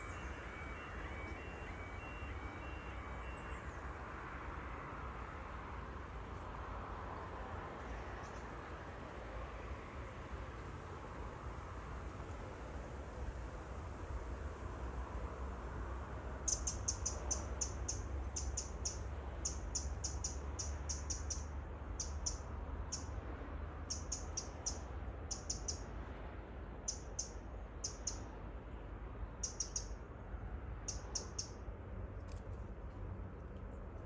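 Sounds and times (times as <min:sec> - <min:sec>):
small bird chirping: 0:16.5 - 0:23.2, 0:23.8 - 0:25.9, 0:26.9 - 0:28.3, 0:29.4 - 0:30.0, 0:30.8 - 0:31.6.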